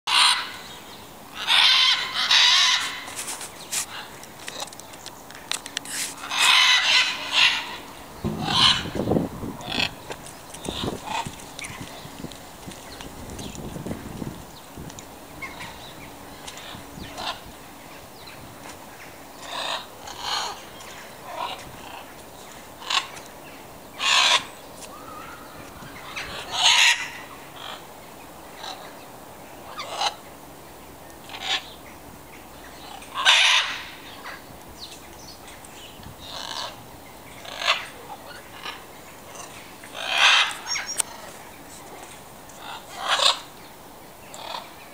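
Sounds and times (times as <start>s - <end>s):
macaws and parrots squawking: 0.1s - 4.7s, 5.9s - 12.1s, 16.5s - 17.6s, 19.4s - 22.2s, 22.8s - 23.2s, 23.9s - 27.9s, 29.6s - 30.3s, 31.2s - 31.8s, 32.8s - 34.4s, 36.2s - 36.8s, 37.4s - 42.0s, 42.6s - 43.5s, 44.3s - 44.8s.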